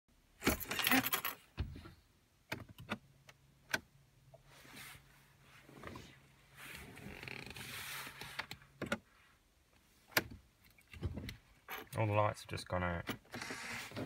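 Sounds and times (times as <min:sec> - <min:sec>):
keys jangling: 0:00.5 - 0:01.4.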